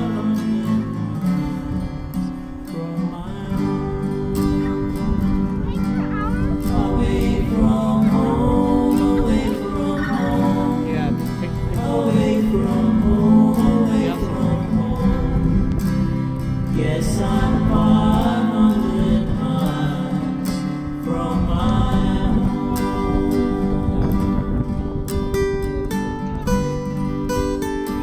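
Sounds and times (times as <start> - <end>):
person singing: 0.0 - 24.8
acoustic guitar song: 0.0 - 28.0.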